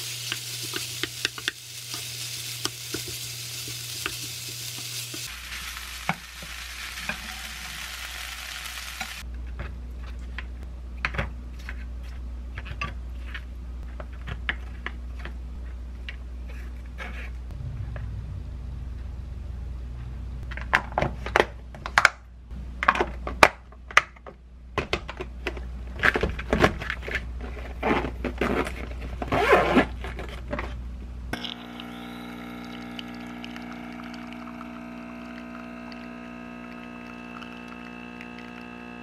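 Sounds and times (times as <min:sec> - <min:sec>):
zipper: 0:27.8 - 0:30.0
coffee machine humming: 0:31.3 - 0:39.0
espresso pouring over ice: 0:31.4 - 0:39.0.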